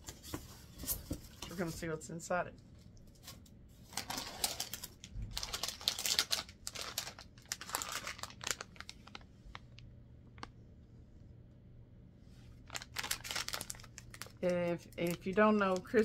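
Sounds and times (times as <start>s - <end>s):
plastic bag crinkling: 3.8s - 10.5s, 12.5s - 16.0s.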